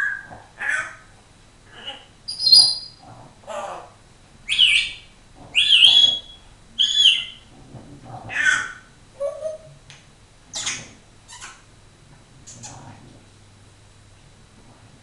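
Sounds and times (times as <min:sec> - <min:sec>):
parrot whistling and chirping: 0:00.0 - 0:00.3, 0:01.9 - 0:03.0, 0:04.5 - 0:07.5.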